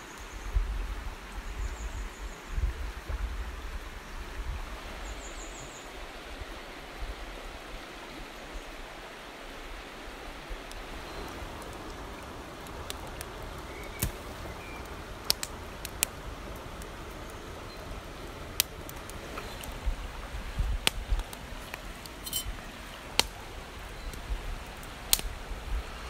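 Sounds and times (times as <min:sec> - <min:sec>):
river rushing over rocks: 0:03.8 - 0:26.0.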